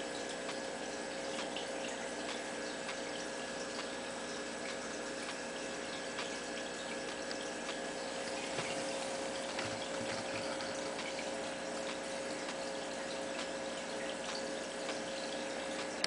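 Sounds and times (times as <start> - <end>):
faint steady hum: 0.0 - 16.0
water trickling and bubbling: 0.0 - 16.0
light ticks: 0.4 - 0.6, 2.2 - 3.0, 4.6 - 5.4.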